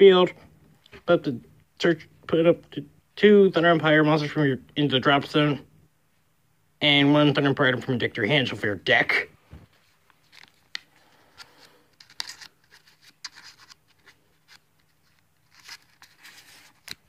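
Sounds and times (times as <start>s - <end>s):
trading cards scraping and rustling: 9.6s - 17.0s.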